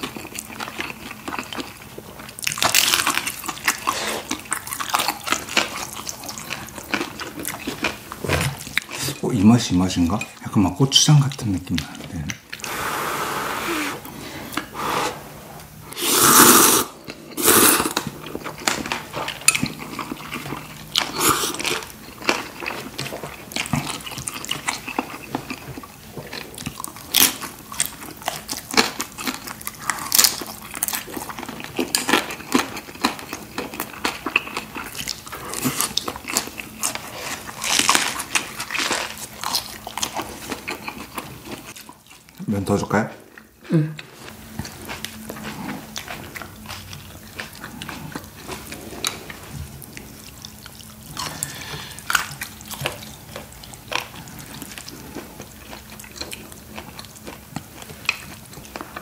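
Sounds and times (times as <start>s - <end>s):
wet chewing: 0.0s - 9.2s, 15.6s - 42.4s, 43.3s - 59.0s
slurping noodles: 12.6s - 18.0s, 21.1s - 21.8s.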